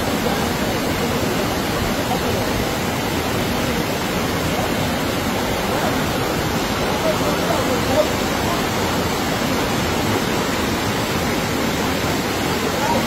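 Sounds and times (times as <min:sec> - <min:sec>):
floodwater rushing over ground: 0:00.0 - 0:13.0
heavy rain: 0:00.0 - 0:13.0.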